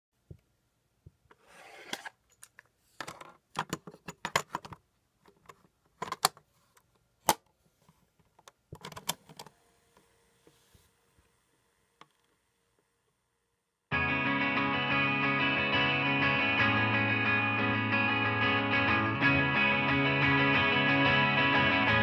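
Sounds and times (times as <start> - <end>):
faint hiss and hum: 4.6 - 13.9
sharp plastic snap: 7.2 - 7.5.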